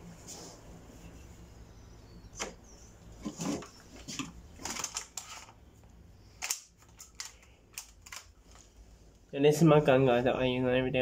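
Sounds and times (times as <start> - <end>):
plastic toy clicks and rattles: 4.6 - 5.5, 6.4 - 8.6.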